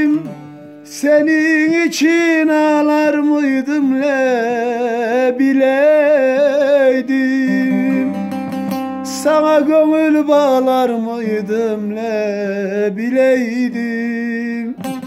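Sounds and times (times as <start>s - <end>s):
man singing with vibrato: 0.0s - 15.0s
plucked long-necked lute: 0.0s - 15.0s.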